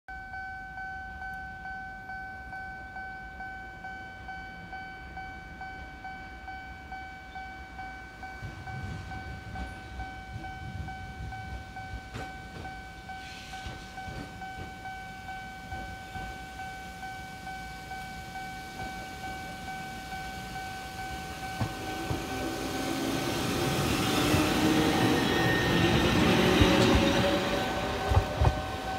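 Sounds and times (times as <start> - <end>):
level-crossing bell ringing: 0.1 - 28.9
train wheels and motors on rails: 1.0 - 28.9.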